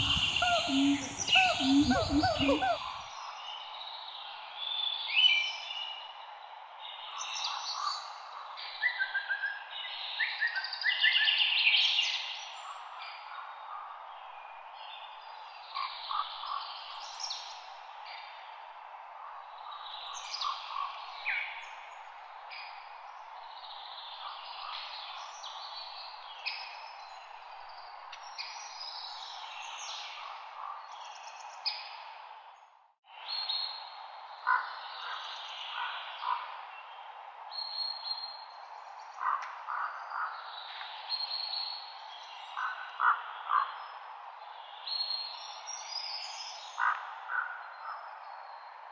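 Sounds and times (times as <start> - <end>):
birds chirping: 0.0 - 3.1
outdoor background hiss: 0.0 - 4.8.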